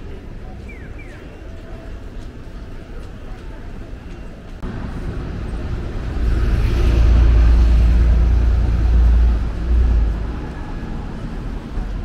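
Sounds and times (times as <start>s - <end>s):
vehicle passing by: 4.7s - 11.7s.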